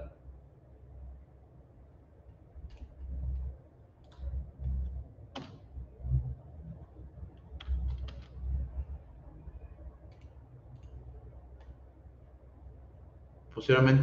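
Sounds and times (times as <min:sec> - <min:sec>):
computer keyboard clicks: 0:04.0 - 0:04.4, 0:07.6 - 0:08.4, 0:10.1 - 0:11.0
dull low thumps: 0:04.2 - 0:07.2.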